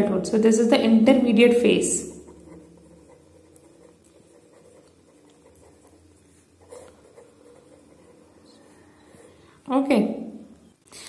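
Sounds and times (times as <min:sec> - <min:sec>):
low steady hum: 0:00.0 - 0:11.0
pen scratching on paper: 0:02.0 - 0:09.4.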